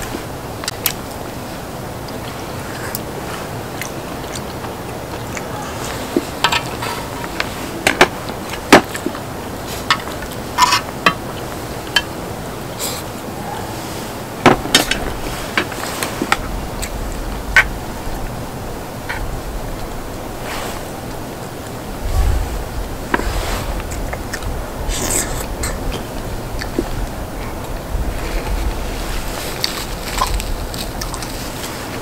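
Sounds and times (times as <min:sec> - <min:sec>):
slurping: 0:00.0 - 0:32.0
steady hiss: 0:00.0 - 0:32.0
chewing: 0:02.0 - 0:14.2, 0:23.2 - 0:32.0
utensils clicking on pot lid: 0:09.9 - 0:11.2.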